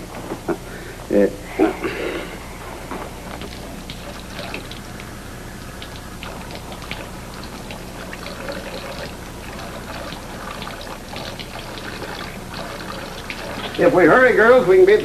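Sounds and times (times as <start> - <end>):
faucet water trickling: 3.1 - 15.0.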